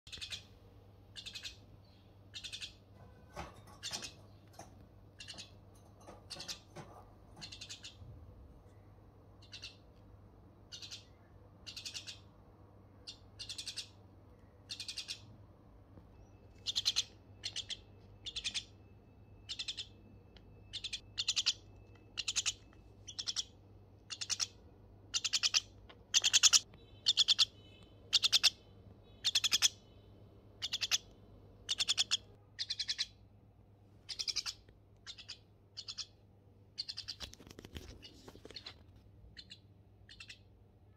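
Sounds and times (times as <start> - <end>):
bird harsh raspy chirps: 0.1 - 0.5, 1.1 - 2.9, 7.4 - 8.0, 9.4 - 9.9, 10.7 - 12.3, 13.0 - 14.0, 14.6 - 15.3, 16.2 - 18.8, 19.4 - 20.0, 20.6 - 30.0, 30.6 - 33.2, 34.0 - 36.2, 36.8 - 37.4, 39.4 - 40.5.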